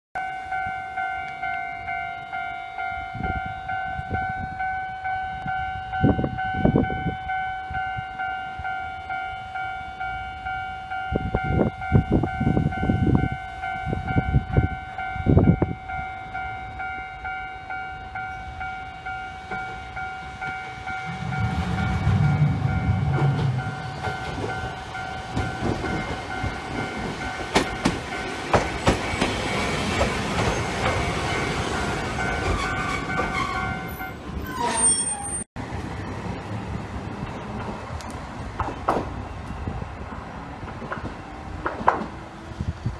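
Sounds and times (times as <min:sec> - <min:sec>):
level-crossing warning bell: 0:00.2 - 0:35.5
tram wheels clattering over rails: 0:19.4 - 0:42.4.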